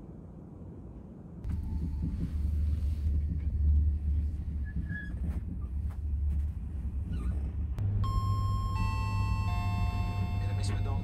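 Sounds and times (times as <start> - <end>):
train carriage rumble: 0.0 - 7.9, 8.6 - 11.0
sustained music tones: 7.8 - 11.0.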